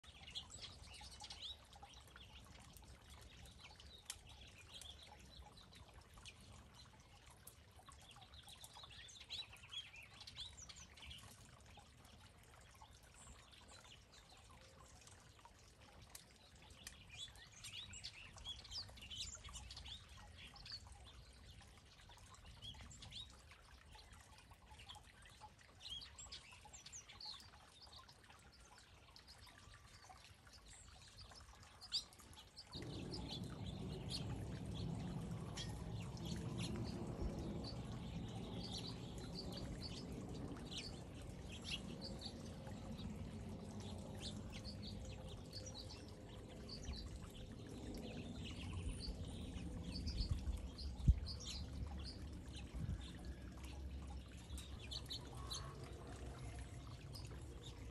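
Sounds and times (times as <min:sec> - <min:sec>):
finches chirping: 0:31.8 - 0:47.5.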